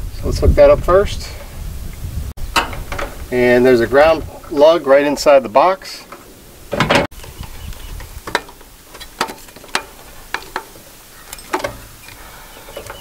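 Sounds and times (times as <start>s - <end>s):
copper wires against metal box: 2.4s - 4.6s, 5.9s - 13.0s.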